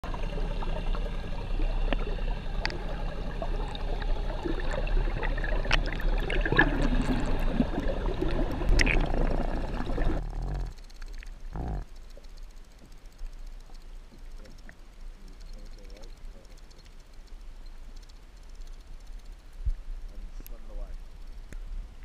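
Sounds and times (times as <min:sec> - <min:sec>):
underwater water rushing: 0:00.0 - 0:11.4
low hum: 0:00.0 - 0:22.0.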